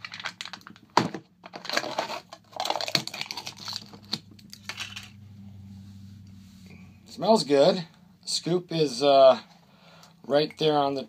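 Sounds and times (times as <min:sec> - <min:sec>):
seal crinkling and tearing: 0:00.0 - 0:05.0.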